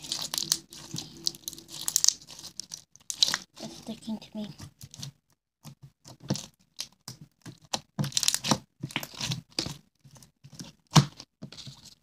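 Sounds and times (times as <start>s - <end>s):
slime crackling and popping: 0.0s - 3.7s, 6.0s - 11.2s.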